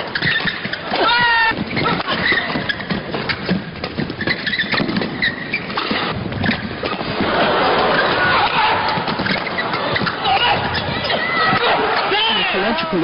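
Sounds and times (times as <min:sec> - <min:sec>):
shoes squeaking on court: 0:00.0 - 0:13.0
crowd murmur: 0:06.7 - 0:13.0.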